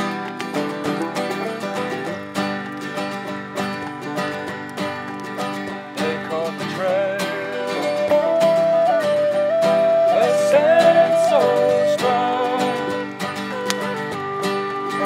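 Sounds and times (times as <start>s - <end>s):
banjo picking: 0.0s - 15.0s
sliding held melody line: 0.0s - 15.0s.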